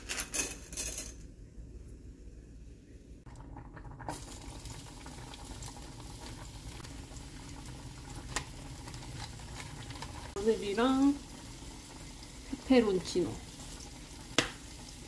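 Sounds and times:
pot of water boiling: 3.2 - 15.0
garlic sizzling in oil: 4.1 - 15.0.

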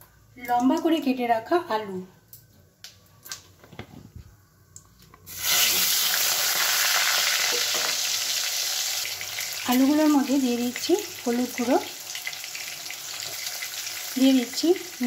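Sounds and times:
potatoes sizzling in hot oil: 5.3 - 15.0.

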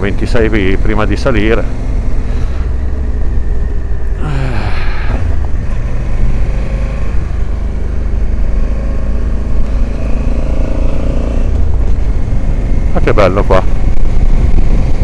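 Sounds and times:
motorcycle engine running: 0.0 - 15.0
wind rumble on microphone: 1.7 - 15.0.

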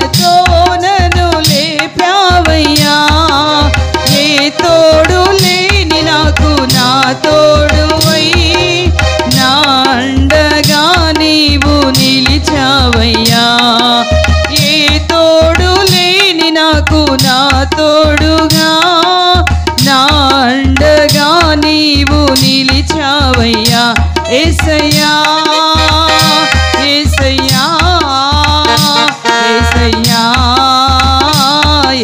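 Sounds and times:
band accompaniment: 0.0 - 16.3, 23.3 - 32.0
steady drum beat: 0.0 - 32.0
woman singing into a microphone: 0.0 - 32.0.

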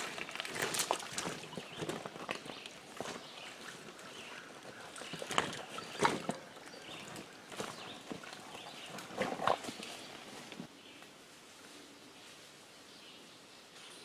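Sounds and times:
water splashing: 0.0 - 9.9
wheels and boots knocking on stones: 0.0 - 9.9.

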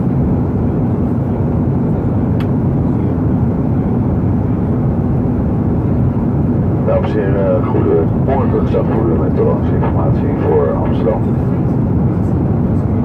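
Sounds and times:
aircraft engine drone: 0.2 - 13.0
airflow around fuselage: 6.4 - 11.5.

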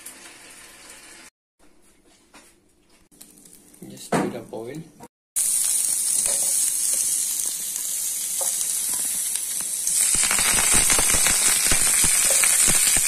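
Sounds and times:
onion sizzling in hot oil: 0.0 - 1.3, 5.4 - 13.0
dense crackling of frying: 3.1 - 4.1, 5.4 - 13.0.

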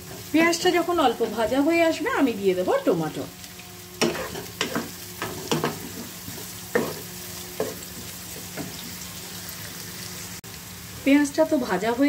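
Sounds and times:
onions sizzling in hot oil: 0.0 - 12.0
spatula scraping and knocking pan: 4.0 - 9.0.

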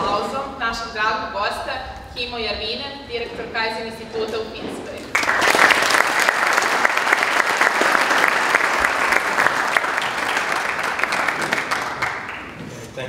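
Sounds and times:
audience applauding: 5.1 - 12.7.

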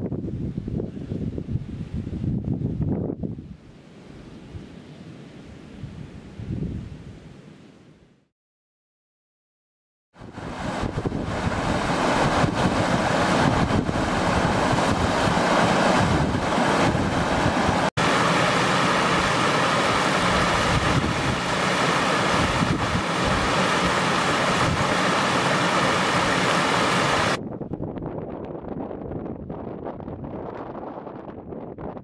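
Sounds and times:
stream rushing over rock: 10.2 - 27.4.

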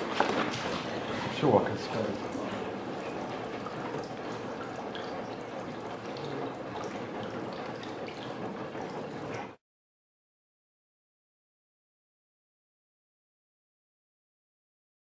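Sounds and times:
rain falling on a puddle: 0.0 - 9.6.

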